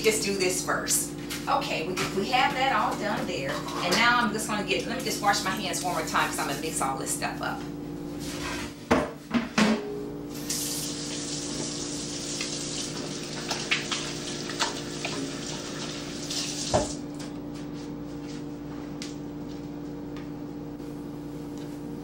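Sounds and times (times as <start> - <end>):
faucet running into steel sink: 10.5 - 17.0.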